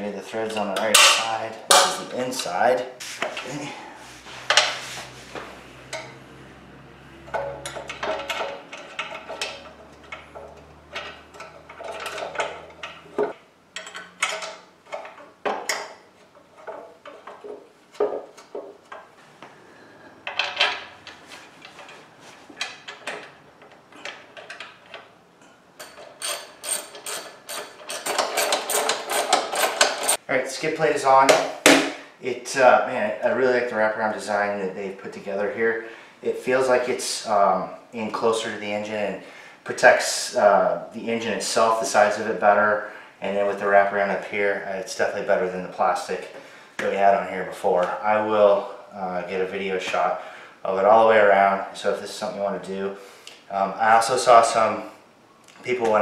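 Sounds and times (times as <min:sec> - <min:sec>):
metal clanks and scrapes: 0:00.5 - 0:06.3, 0:07.2 - 0:19.1, 0:19.7 - 0:30.2.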